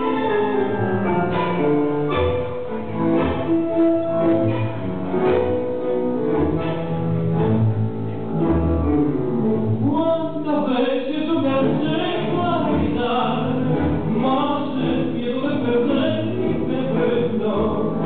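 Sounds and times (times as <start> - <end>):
tango music: 0.0 - 18.0
person singing: 9.8 - 18.0.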